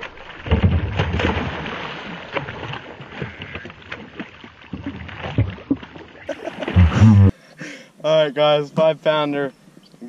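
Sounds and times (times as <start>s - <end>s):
fish splashing in water: 0.0s - 6.8s.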